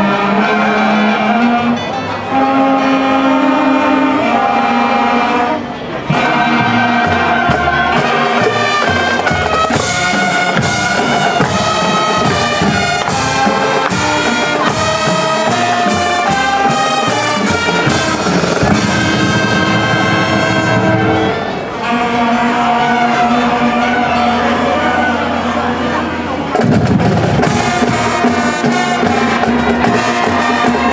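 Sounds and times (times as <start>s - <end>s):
brass band chords: 0.0s - 30.9s
regular drum beat: 6.1s - 21.1s, 26.5s - 30.9s.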